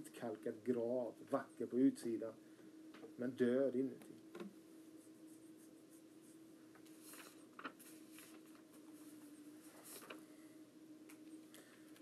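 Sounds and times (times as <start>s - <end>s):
faint steady hum: 0.0s - 12.0s
paper sheets rustling: 6.2s - 10.5s.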